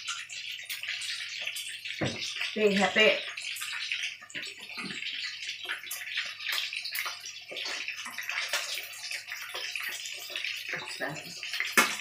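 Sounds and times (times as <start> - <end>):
deep-frying sizzle with pops: 0.0 - 12.0.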